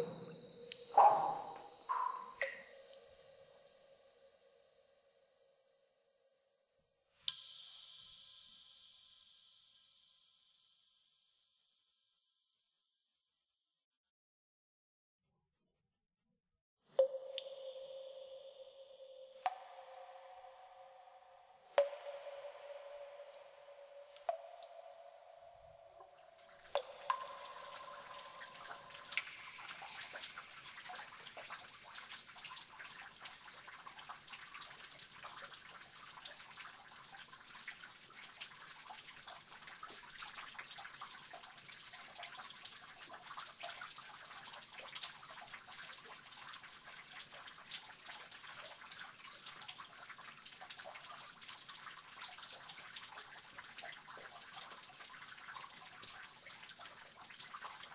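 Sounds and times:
running water: 0.0 - 3.2, 26.0 - 42.2
water drops falling in a cave: 0.0 - 4.1, 7.2 - 9.9, 17.0 - 57.9.

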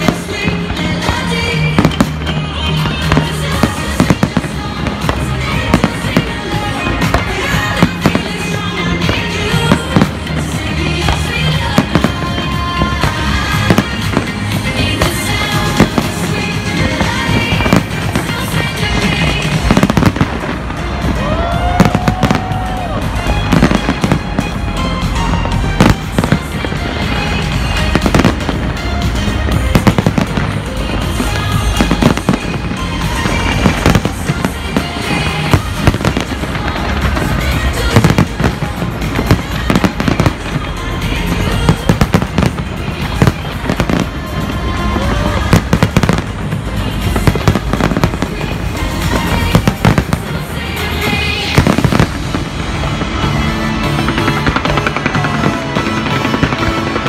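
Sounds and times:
fireworks crackling: 0.0 - 57.0
music playing: 0.0 - 57.0.

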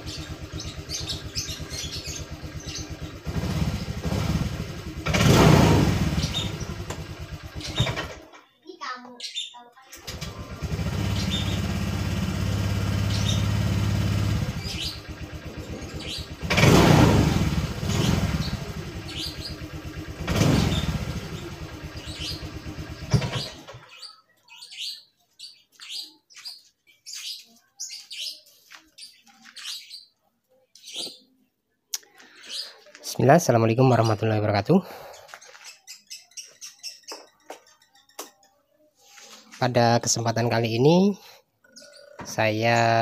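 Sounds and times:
scooter engine idling and revving: 0.0 - 8.3, 9.9 - 24.1
birds chirping: 0.0 - 43.0.

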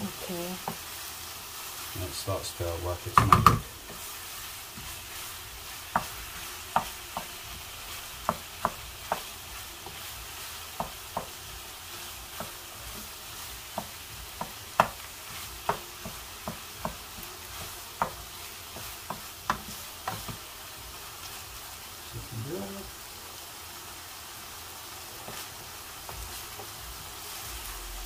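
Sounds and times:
mince sizzling: 0.0 - 28.0
wooden spoon knocking frying pan: 3.1 - 4.1, 5.8 - 7.6, 8.2 - 11.5, 12.3 - 20.4.

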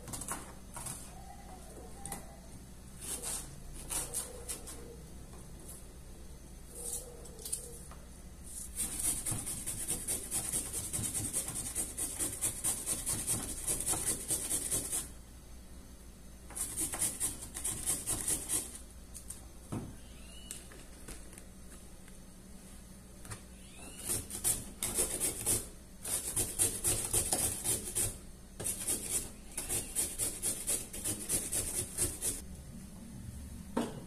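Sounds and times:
grater rasping carrot: 16.6 - 18.8, 24.0 - 32.4.

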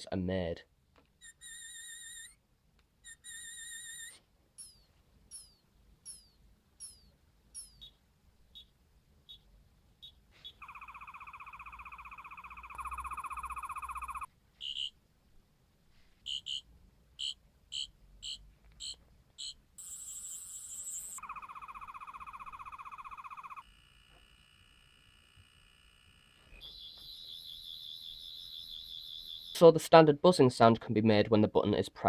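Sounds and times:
warbling electronic buzz: 1.2 - 2.4, 3.1 - 5.5, 10.6 - 14.9, 18.8 - 29.6
high-pitched whine: 10.6 - 14.3, 19.8 - 29.6.

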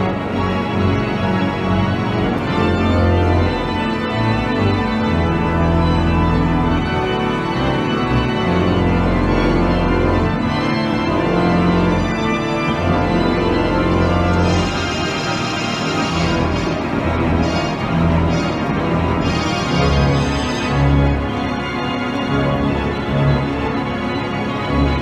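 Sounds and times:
deep organ bass notes: 0.0 - 25.0
pipe organ chords: 0.0 - 25.0.

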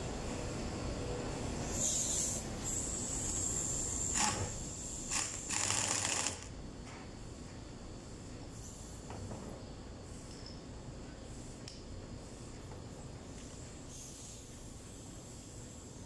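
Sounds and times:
air hissing: 1.4 - 6.5, 7.1 - 9.2, 10.0 - 16.0
pneumatic impact wrench bursts: 1.6 - 6.5, 13.9 - 16.0.

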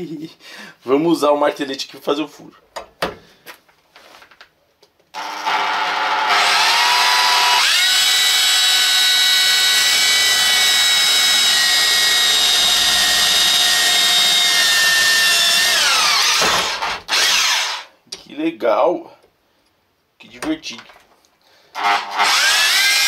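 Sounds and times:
rotary hammer drilling steel: 5.2 - 17.9, 21.8 - 23.0.

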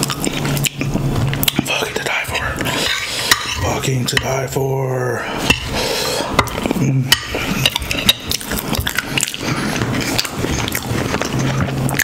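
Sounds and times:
wet mouth chewing: 0.0 - 3.1, 5.6 - 12.0.

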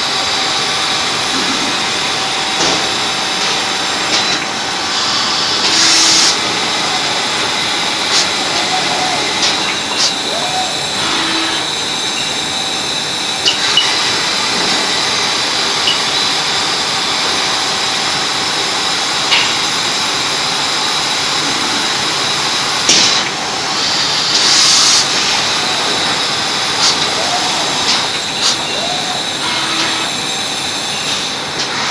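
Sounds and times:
machine and air noise: 0.0 - 31.9.

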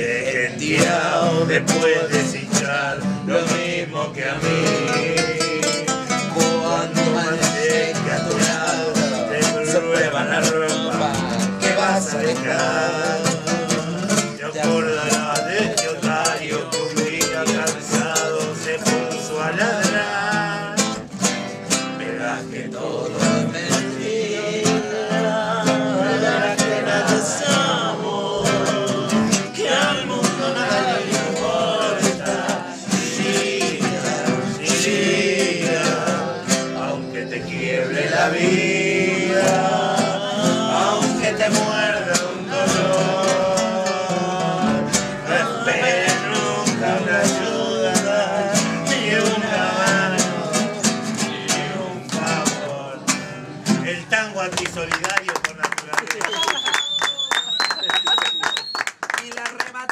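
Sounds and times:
classical guitar strumming: 0.0 - 54.8
men singing: 0.0 - 54.8.

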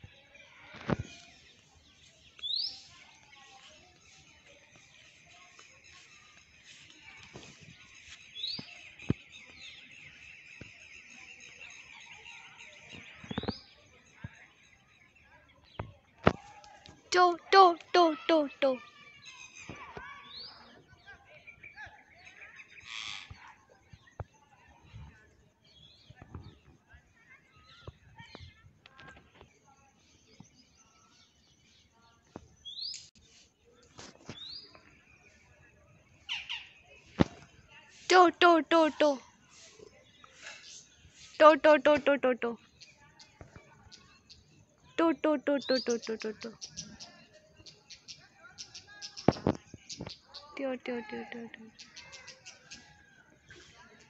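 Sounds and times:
high rapid bird chirping: 40.6 - 52.8.

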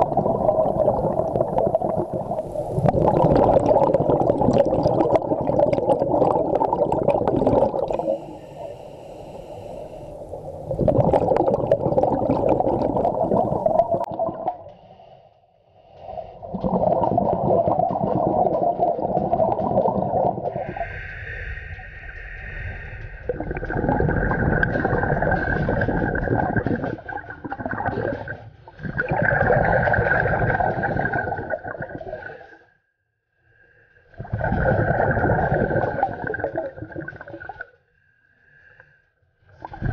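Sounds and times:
bubbling underwater exhalations: 0.0 - 8.6, 10.1 - 14.7, 16.4 - 21.0, 23.0 - 32.4, 34.2 - 37.6
hissing regulator inhalations: 7.7 - 10.8, 20.5 - 23.6.

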